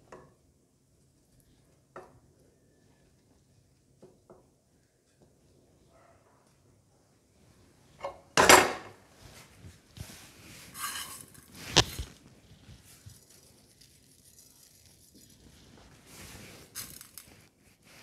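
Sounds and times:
tableware clinking and scraping: 0:08.0 - 0:08.9, 0:10.7 - 0:12.1.

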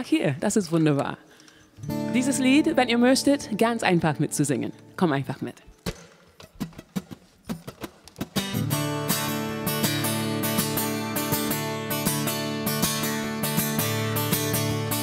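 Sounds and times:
strummed acoustic guitar: 0:01.8 - 0:05.0, 0:06.4 - 0:15.0.

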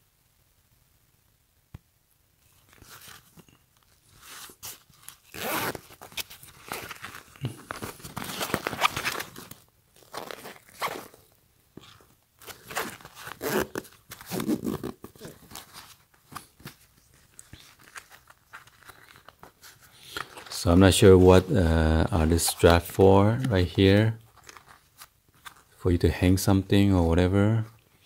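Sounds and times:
nylon bag rustling: 0:04.1 - 0:22.6
zipper pocket opening: 0:04.3 - 0:15.7.

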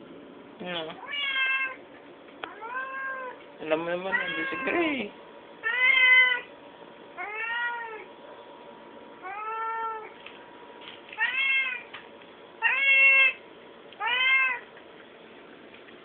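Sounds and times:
cat meowing: 0:01.0 - 0:01.8, 0:02.5 - 0:03.4, 0:04.1 - 0:04.9, 0:05.6 - 0:06.5, 0:07.2 - 0:08.1, 0:09.2 - 0:10.2, 0:11.2 - 0:11.9, 0:12.6 - 0:13.4, 0:14.0 - 0:14.7.

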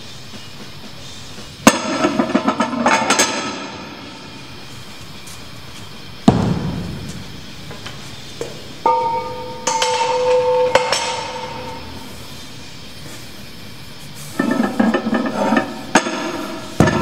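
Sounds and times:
heavy thud on gym floor: 0:06.2 - 0:07.6
weight plates clanking: 0:08.8 - 0:12.1.

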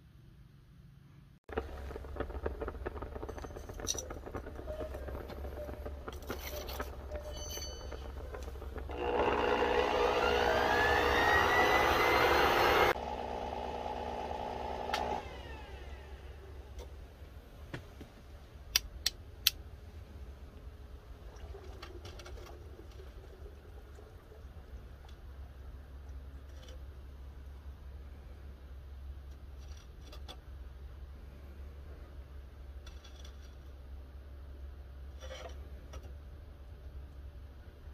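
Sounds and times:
low rumble: 0:01.5 - 0:11.1
electric air blower whine: 0:08.9 - 0:16.4.

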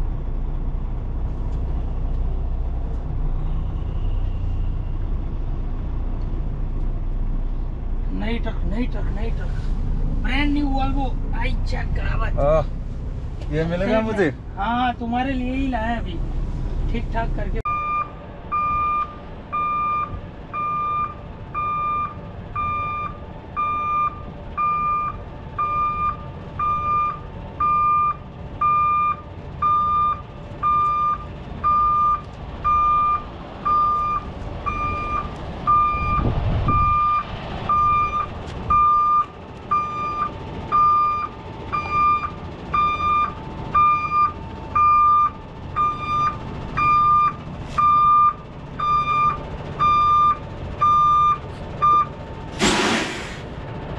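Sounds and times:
low engine rumble: 0:00.0 - 0:53.9
reversing alarm beeping: 0:17.7 - 0:52.2.

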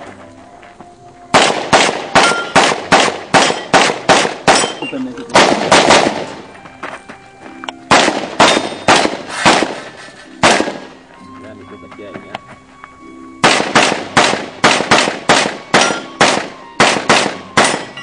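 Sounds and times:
gunshots: 0:01.3 - 0:06.5, 0:07.9 - 0:11.0, 0:13.4 - 0:18.0.

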